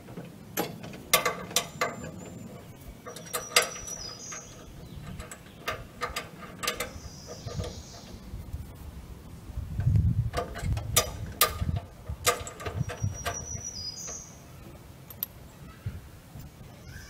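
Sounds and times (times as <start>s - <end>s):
sharp metal clicks and clinks: 15.1s - 15.4s.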